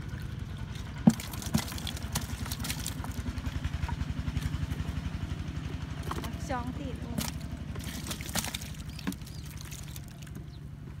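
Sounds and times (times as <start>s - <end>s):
small engine idling: 0.0s - 11.0s
fish dropping into plastic bucket: 1.0s - 3.1s, 7.2s - 10.4s.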